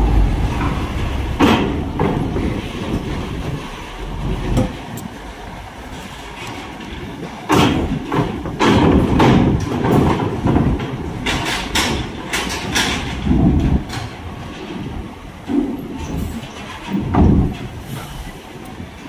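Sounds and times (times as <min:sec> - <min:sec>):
truck engine running low: 0:00.0 - 0:08.2.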